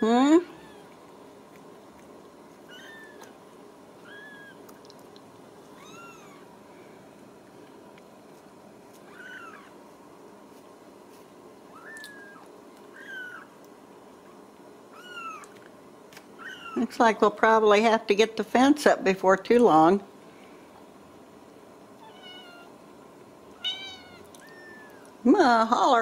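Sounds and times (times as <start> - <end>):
steady background hum: 0.0 - 26.0
kittens mewing: 2.7 - 3.4, 4.0 - 4.7, 5.8 - 6.5, 9.0 - 9.8, 11.7 - 13.6, 15.0 - 15.6, 22.0 - 22.8, 23.6 - 25.2.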